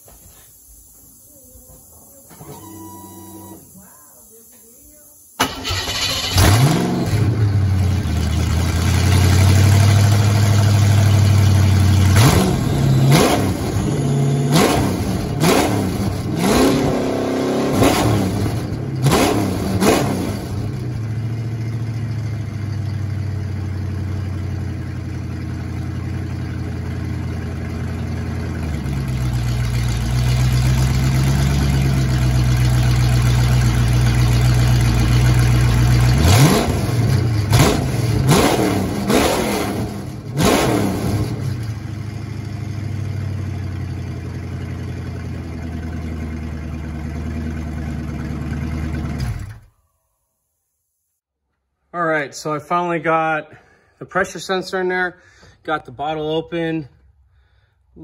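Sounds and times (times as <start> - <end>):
car engine idling and revving: 5.5 - 49.7.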